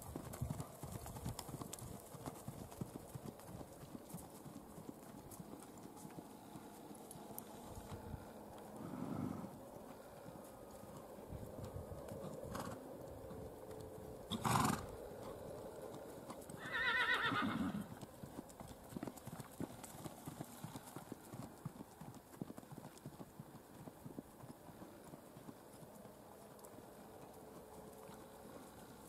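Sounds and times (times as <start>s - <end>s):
hoofbeats on dirt: 0.0s - 29.0s
horse whinnying: 14.3s - 14.9s, 16.6s - 17.9s.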